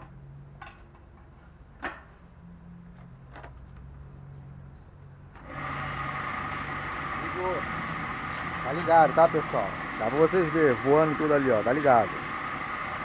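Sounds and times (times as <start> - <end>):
leaf shredder motor running: 5.4 - 13.0.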